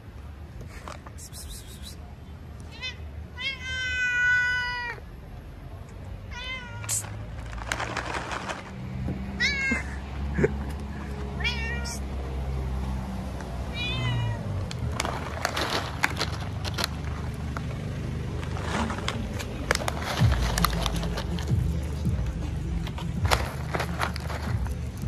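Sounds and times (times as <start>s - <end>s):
cat meowing: 2.7s - 5.0s, 6.3s - 7.0s, 9.4s - 9.8s, 11.4s - 12.1s, 13.7s - 14.5s.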